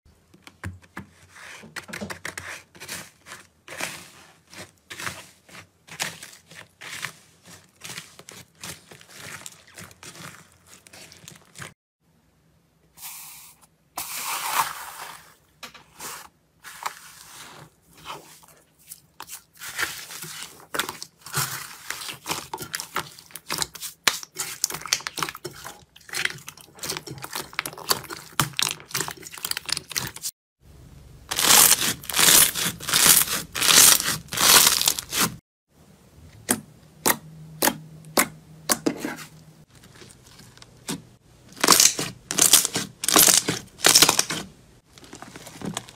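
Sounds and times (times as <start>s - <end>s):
slime crackling and popping: 31.3s - 35.2s, 41.6s - 44.4s.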